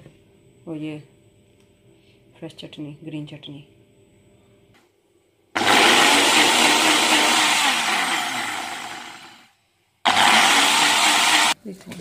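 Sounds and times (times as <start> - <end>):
electric blender grinding: 5.6 - 11.6.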